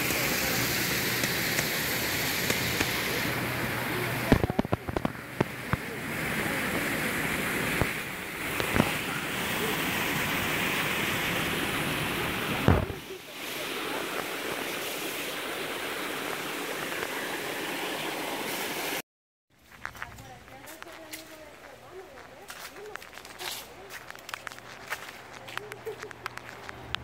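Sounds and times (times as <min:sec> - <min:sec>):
water rushing over a weir: 0:00.0 - 0:19.0.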